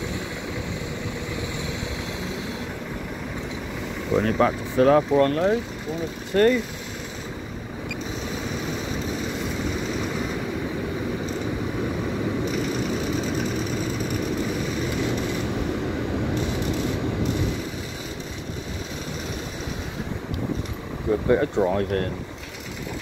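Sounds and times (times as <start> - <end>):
vehicle engine rumbling: 0.0 - 23.0.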